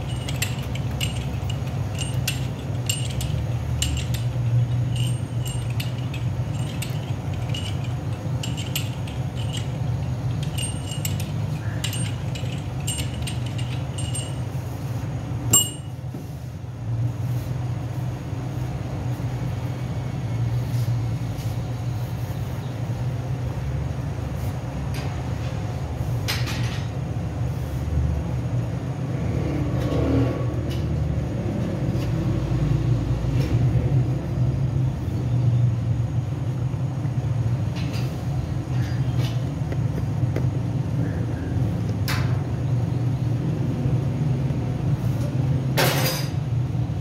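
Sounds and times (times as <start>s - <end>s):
light metallic clinks: 0.0s - 14.7s, 15.5s - 16.0s
low machine hum: 0.0s - 24.3s.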